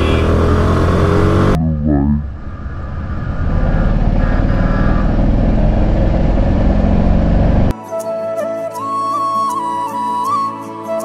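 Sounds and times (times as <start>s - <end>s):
motorcycle engine drone: 0.0s - 7.7s
wind and road rush: 0.0s - 7.8s.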